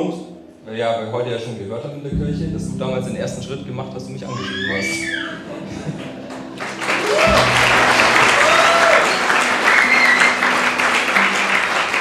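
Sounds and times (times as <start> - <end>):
background music: 0.0 - 12.0
audience clapping: 5.8 - 12.0.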